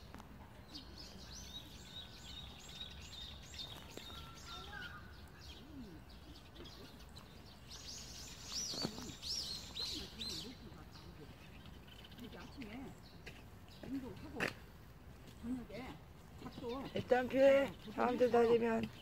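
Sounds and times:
faint outdoor background noise: 0.0s - 19.0s
bird chirping: 0.6s - 14.5s.

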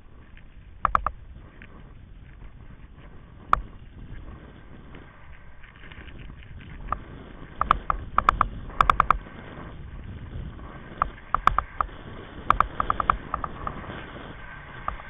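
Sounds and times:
low rumble of wind and wheels: 0.0s - 15.0s
sharp clicking rattles: 0.2s - 1.7s, 5.7s - 9.3s, 10.9s - 14.1s, 14.7s - 15.0s.

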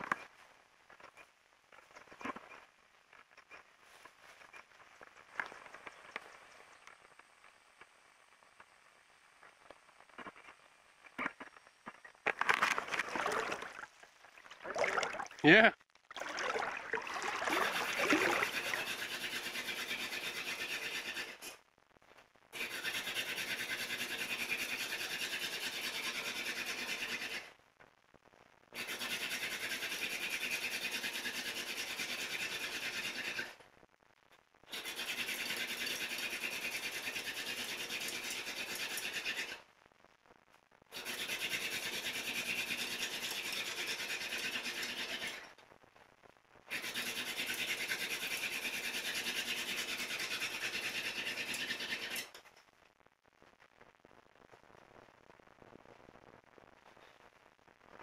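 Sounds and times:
wooden spindle grinding rasp: 17.5s - 21.6s, 22.6s - 27.5s, 28.8s - 33.6s, 34.7s - 39.6s, 41.0s - 45.5s, 46.7s - 52.4s.

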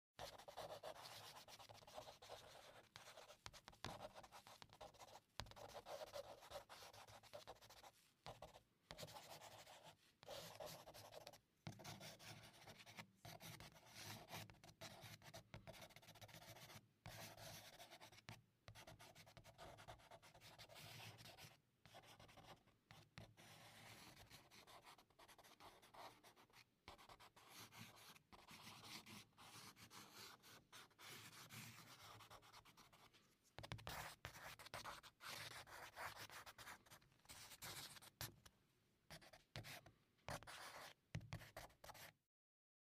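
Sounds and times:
charcoal scratching on paper: 0.2s - 22.6s.

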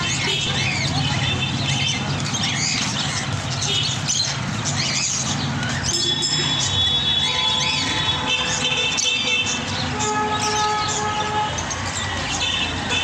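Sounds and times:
murmur of voices: 0.0s - 8.3s.

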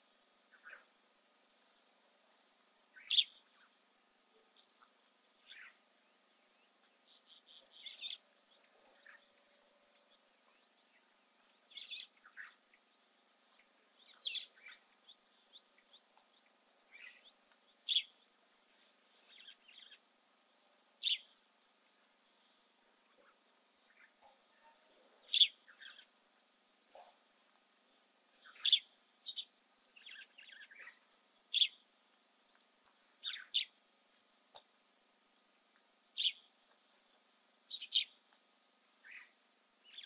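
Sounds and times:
birds chirping: 2.9s - 3.8s, 4.4s - 20.1s, 21.0s - 21.4s, 22.2s - 27.2s, 27.9s - 31.9s, 33.2s - 33.8s, 36.2s - 37.0s, 37.7s - 38.2s, 39.0s - 40.0s.

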